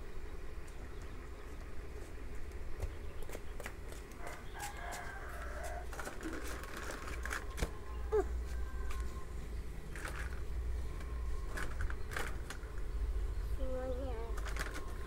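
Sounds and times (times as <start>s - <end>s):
steady low rumble: 0.0s - 15.0s
plastic toys clicking and knocking: 5.9s - 7.7s, 11.5s - 12.6s, 14.3s - 15.0s.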